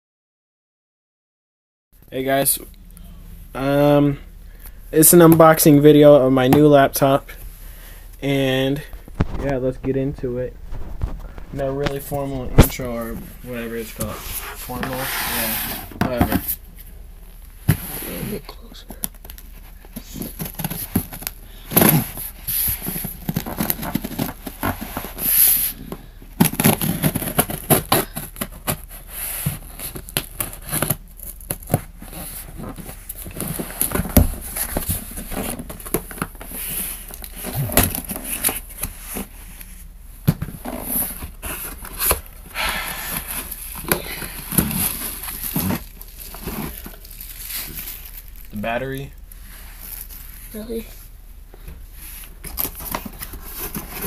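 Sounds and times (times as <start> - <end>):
paper and plastic rustling: 17.6 - 51.1, 51.8 - 54.0
cardboard box being handled: 52.2 - 54.0.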